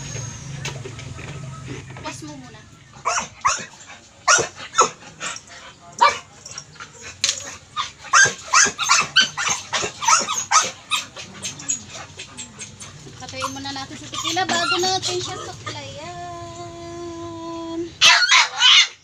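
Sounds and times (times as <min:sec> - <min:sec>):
dog barking: 0:03.0 - 0:05.0, 0:06.0 - 0:06.3, 0:07.3 - 0:11.8, 0:18.0 - 0:19.0.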